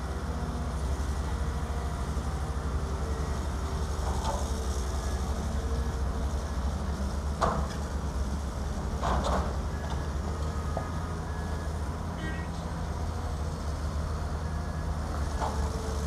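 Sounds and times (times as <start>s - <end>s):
excavator diesel engine rumbling: 0.0s - 16.0s.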